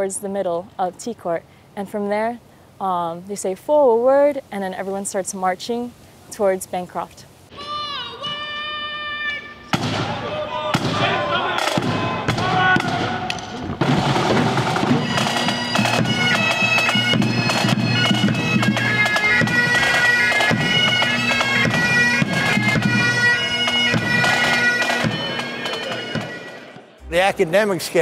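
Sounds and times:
bagpipes droning: 7.6s - 13.4s, 14.0s - 27.8s
drums beating: 9.7s - 28.0s.

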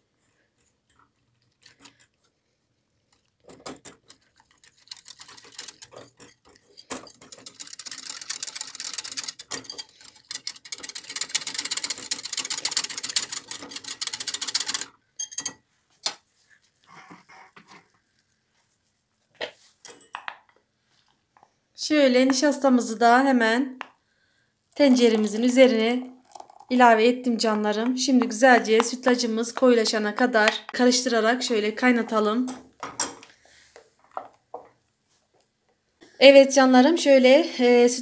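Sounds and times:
wire whisk clattering on glass: 15.2s - 15.6s.

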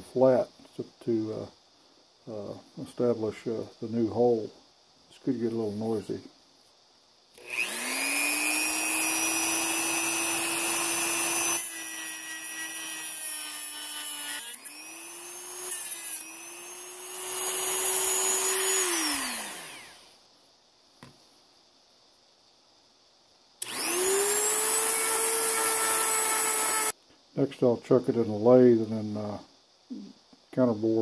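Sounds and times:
rotary tool grinding metal: 7.4s - 20.0s, 23.6s - 26.9s.

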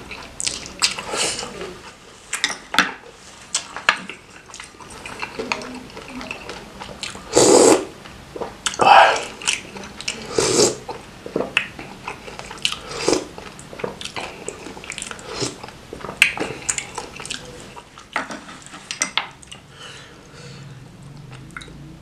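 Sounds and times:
wet chewing: 3.5s - 19.7s.

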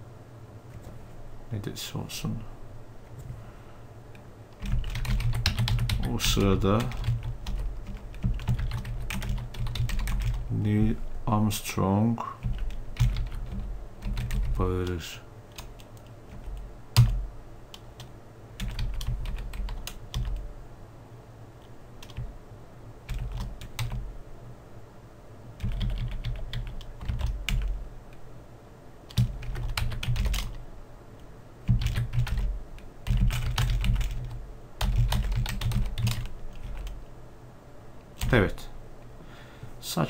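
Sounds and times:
typing on computer keyboard: 4.6s - 10.4s, 12.4s - 14.6s, 15.5s - 20.4s, 22.0s - 22.3s, 23.1s - 24.0s, 25.6s - 27.8s, 29.1s - 30.6s, 31.7s - 37.0s.

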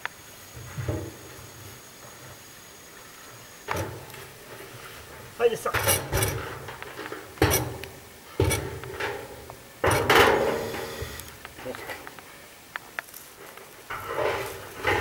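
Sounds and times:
feeder bumping against tree trunk: 5.7s - 9.0s.

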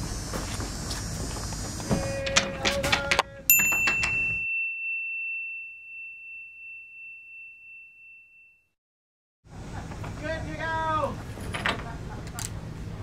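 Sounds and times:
bright bell-like ding: 3.5s - 8.7s.

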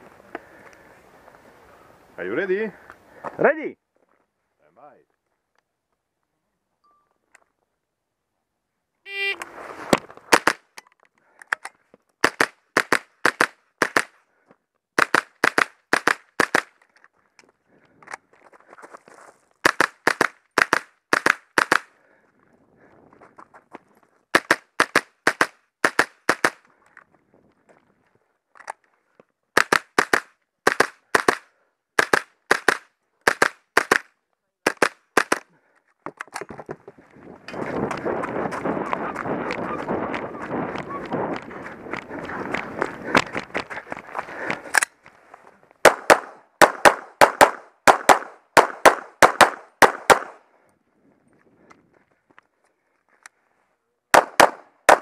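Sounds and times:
rifle shots: 45.8s - 50.4s, 54.2s - 55.0s.

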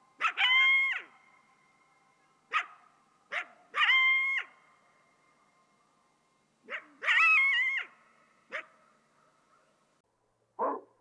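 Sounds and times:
coyote barking: 0.2s - 1.2s, 2.5s - 4.6s, 6.6s - 8.9s, 10.6s - 11.0s
coyote howling: 0.2s - 1.2s, 3.3s - 4.6s, 6.7s - 8.6s.

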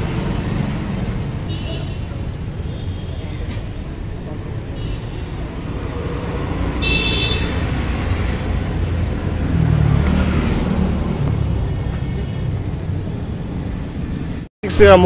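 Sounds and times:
motor traffic rumble: 0.0s - 15.0s.

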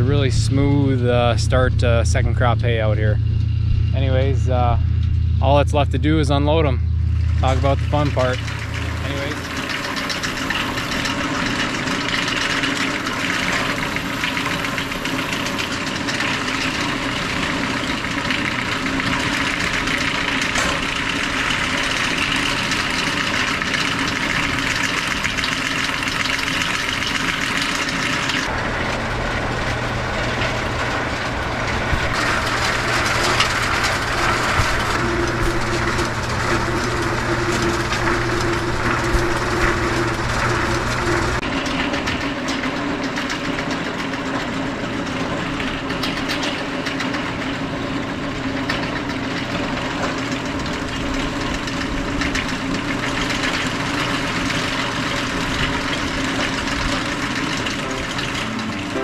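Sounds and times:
bale elevator clattering: 28.2s - 59.0s.

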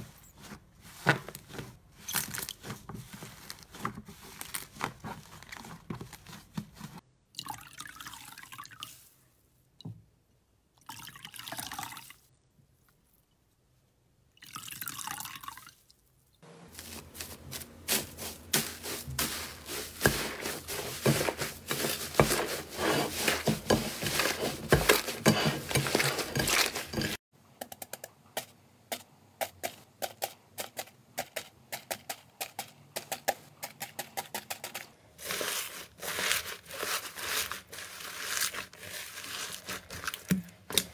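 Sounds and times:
slime squelching: 16.7s - 27.2s, 34.0s - 40.9s
foam beads clicking and crunching: 34.0s - 40.3s.

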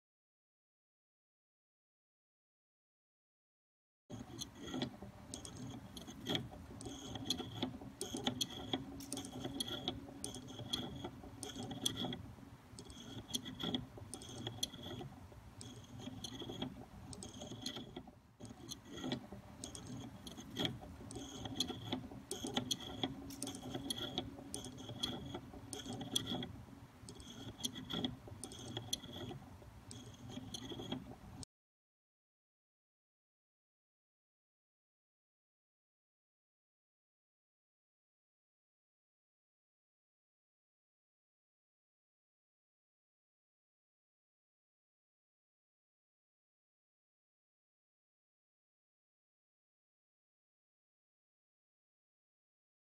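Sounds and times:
clockwork toy clicking and rattling: 4.1s - 31.4s.

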